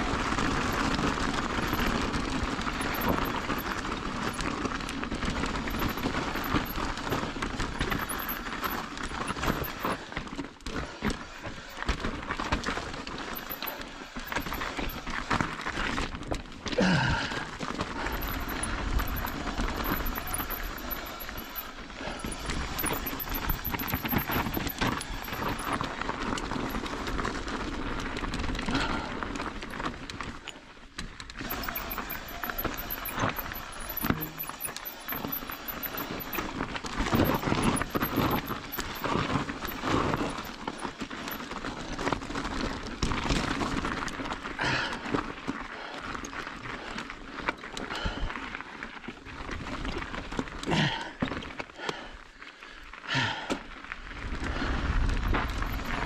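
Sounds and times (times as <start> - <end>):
bike tyres crunching on gravel: 0.0 - 20.0, 23.7 - 31.5, 38.5 - 50.9
bike rattling over bumps: 0.0 - 51.9, 53.8 - 56.0.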